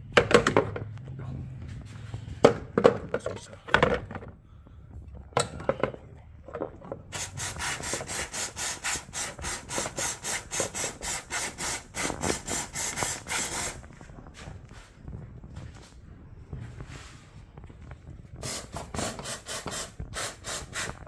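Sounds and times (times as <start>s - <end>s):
aerosol spray hissing bursts: 7.1s - 13.8s, 18.4s - 21.0s.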